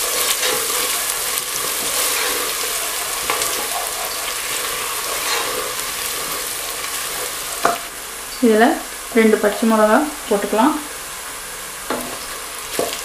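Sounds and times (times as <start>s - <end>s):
spatula scraping and tapping pot: 0.0s - 7.8s, 11.9s - 13.0s
onions sizzling in hot oil: 0.0s - 13.0s.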